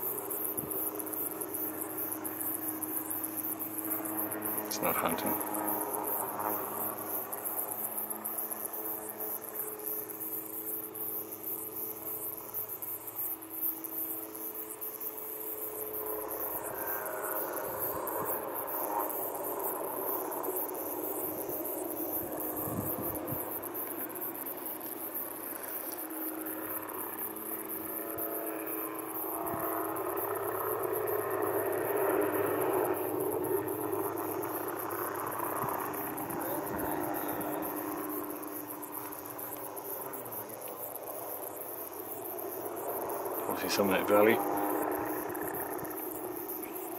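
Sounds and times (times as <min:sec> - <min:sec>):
faint helicopter hum: 0:00.0 - 0:46.9
insects chirring: 0:00.0 - 0:46.9.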